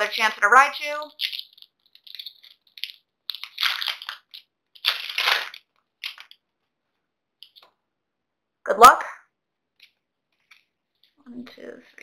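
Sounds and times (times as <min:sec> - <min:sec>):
foil wrapper tearing and crinkling: 0:01.2 - 0:06.4.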